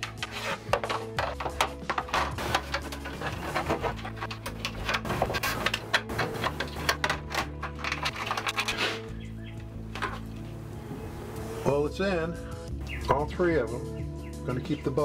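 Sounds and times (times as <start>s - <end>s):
plastic vent cover clicks and rattles: 0.0s - 8.8s
soft background music: 0.0s - 15.0s.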